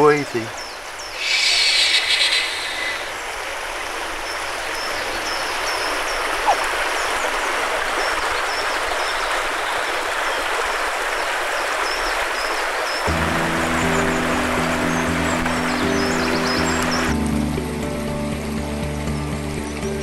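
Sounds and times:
stream rushing over stones: 0.0 - 19.6
person shushing: 1.2 - 3.1.

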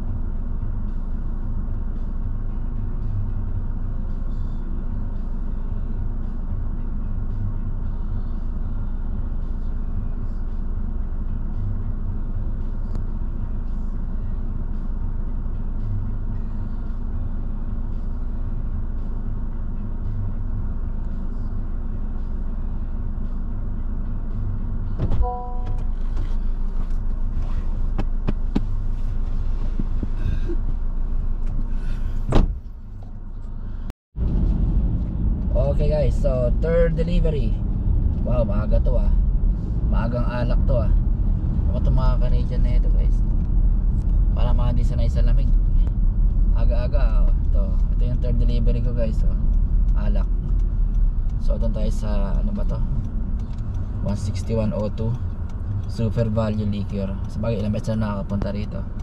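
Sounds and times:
car engine and road rumble: 0.0 - 59.0
short beep: 25.2 - 25.9.

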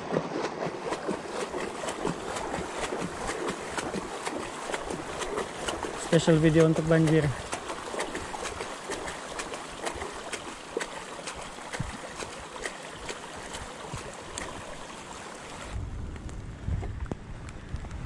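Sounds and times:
tyres splashing through water: 0.0 - 15.8
low rumbling rush: 15.7 - 18.0.

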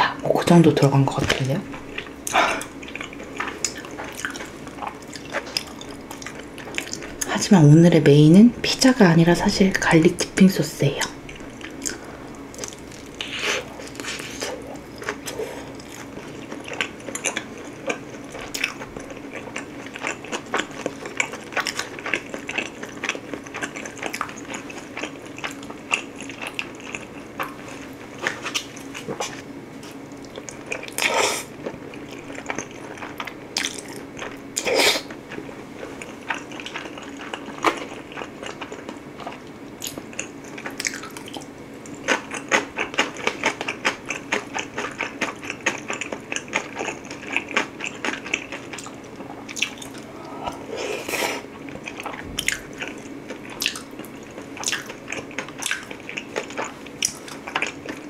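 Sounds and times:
faint steady hum: 0.0 - 58.0
chewing crunchy pizza: 1.2 - 7.4, 11.0 - 58.0.

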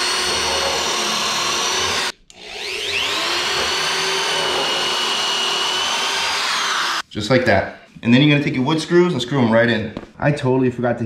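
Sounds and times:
electric drill boring into wood: 0.0 - 7.0.

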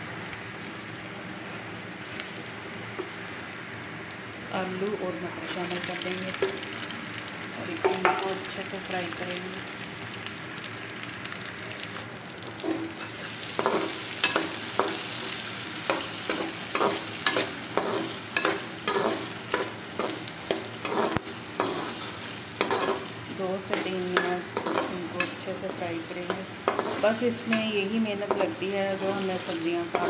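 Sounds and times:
vegetables sizzling in oil: 0.0 - 30.0
spoon scraping pan: 12.6 - 15.0, 15.9 - 30.0.

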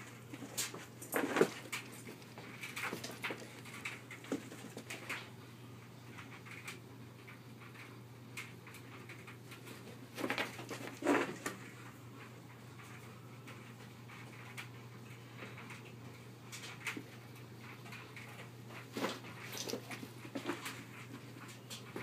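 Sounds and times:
dog paws scrabbling on carpet: 18.4 - 22.0.

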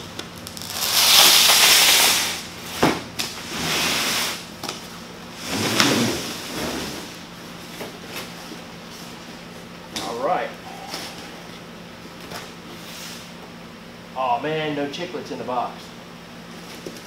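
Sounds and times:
cardboard box scraping on concrete: 3.5 - 4.4, 5.4 - 7.2.

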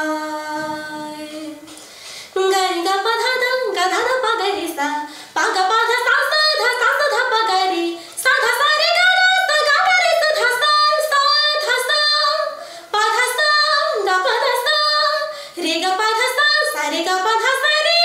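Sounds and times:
woman singing unaccompanied: 0.0 - 1.8, 2.4 - 18.0.

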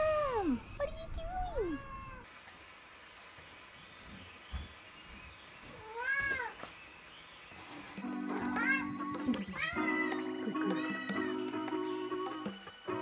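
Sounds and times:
cat meowing: 1.6 - 2.3, 5.8 - 6.6, 9.6 - 12.1.

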